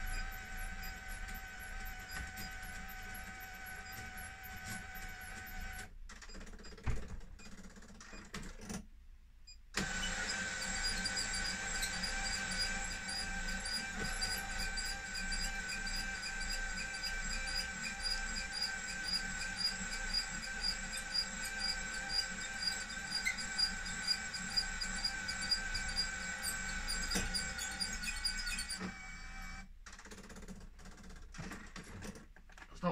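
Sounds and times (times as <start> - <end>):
electric motor whining: 9.8 - 29.6.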